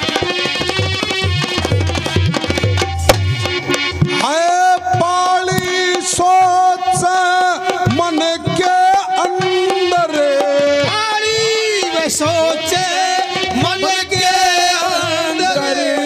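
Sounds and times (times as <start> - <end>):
hand drum: 0.0 - 16.0
harmonium: 0.0 - 16.0
man singing long held notes: 4.1 - 16.0.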